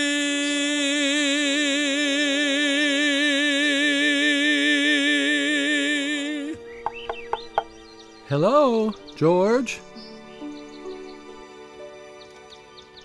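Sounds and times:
man singing a long note: 0:00.0 - 0:06.6
soft accompaniment: 0:00.2 - 0:13.0.

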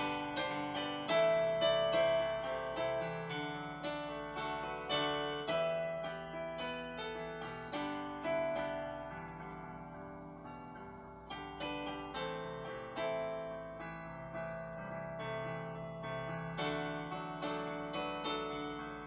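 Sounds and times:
electronic keyboard piano chords: 0:00.0 - 0:19.0.

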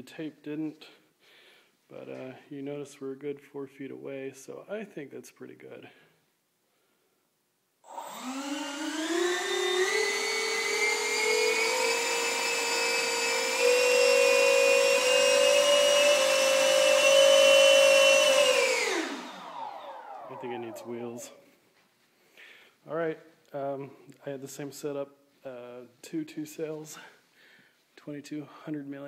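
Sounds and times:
electric ducted fans whining: 0:08.0 - 0:21.4.

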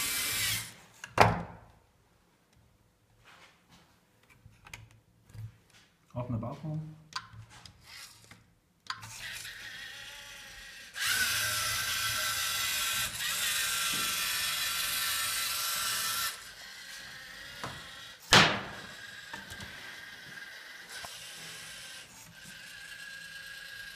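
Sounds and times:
robot motors and gears whirring: 0:09.0 - 0:18.2.

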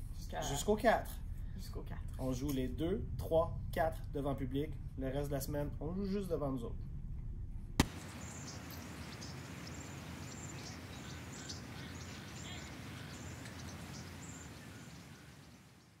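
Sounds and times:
background hiss and rumble: 0:00.0 - 0:16.0
small birds chirping: 0:07.8 - 0:16.0.

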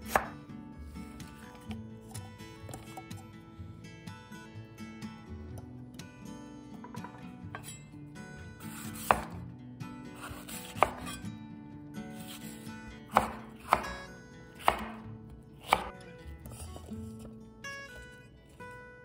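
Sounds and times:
knife slicing pepper: 0:00.0 - 0:00.4, 0:01.0 - 0:03.2, 0:08.6 - 0:09.4, 0:10.1 - 0:11.2, 0:12.1 - 0:14.0, 0:14.6 - 0:18.8
knife striking cutting board: 0:00.1 - 0:00.4, 0:06.8 - 0:07.8, 0:08.7 - 0:09.4, 0:10.2 - 0:11.2, 0:13.1 - 0:14.0, 0:14.6 - 0:15.0, 0:15.6 - 0:16.9.

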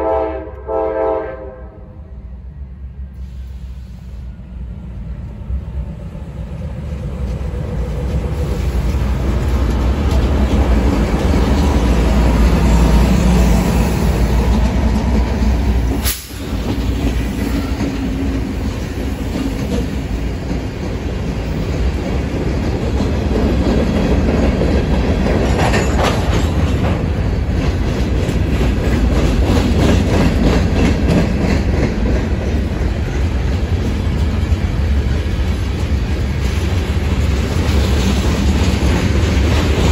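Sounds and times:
diesel locomotives under power: 0:00.0 - 0:39.9
train wheels clicking over rail joints: 0:06.4 - 0:39.9.

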